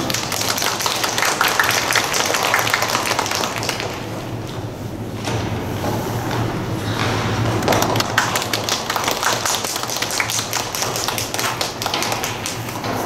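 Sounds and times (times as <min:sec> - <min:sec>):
audience clapping: 0:00.0 - 0:04.3, 0:07.1 - 0:13.0
steady low hum: 0:00.0 - 0:13.0.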